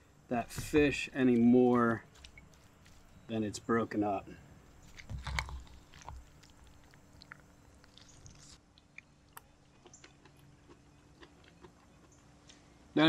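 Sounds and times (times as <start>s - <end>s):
utensil handling wet salad: 4.7s - 8.6s.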